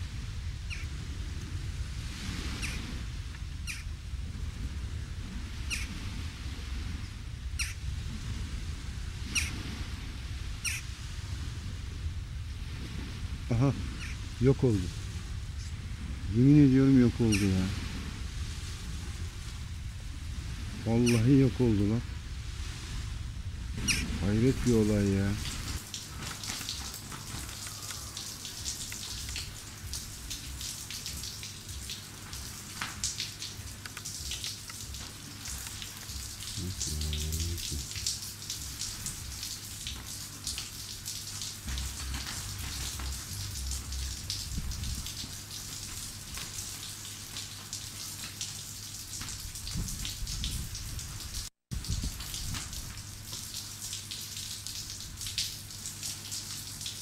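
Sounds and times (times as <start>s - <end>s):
low steady hum: 3.1s - 48.8s
rain pattering: 23.4s - 57.0s.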